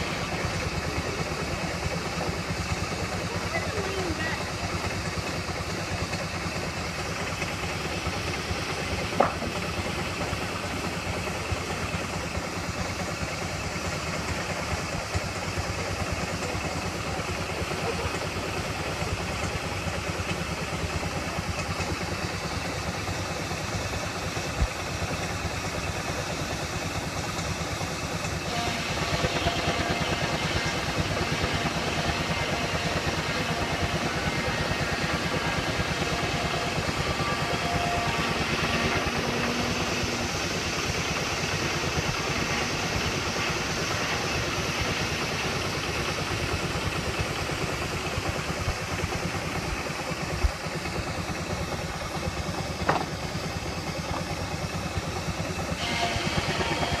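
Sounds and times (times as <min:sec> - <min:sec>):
steam traction engine running: 0:00.0 - 0:57.0
higher steady hum: 0:28.5 - 0:45.4.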